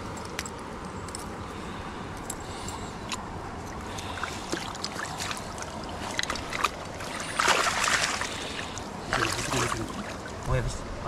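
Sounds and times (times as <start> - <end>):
small splashes and drips: 3.1 - 10.6
water running over stones: 3.8 - 10.6
loud water splash: 4.1 - 10.4.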